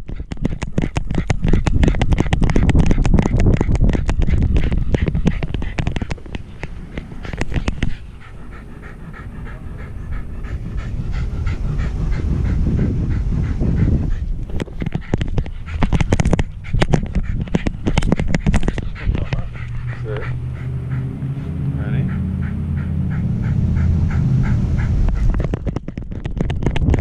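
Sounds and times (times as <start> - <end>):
harness mount knocking and rubbing: 0.0 - 8.2, 14.1 - 20.3, 25.0 - 27.0
dog panting: 0.0 - 27.0.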